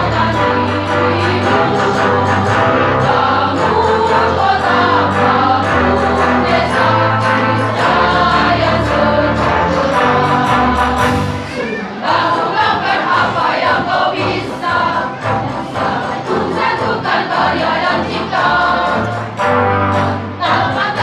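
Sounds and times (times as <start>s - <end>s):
low accompaniment: 0.0s - 11.5s
women's choir singing: 0.0s - 21.0s.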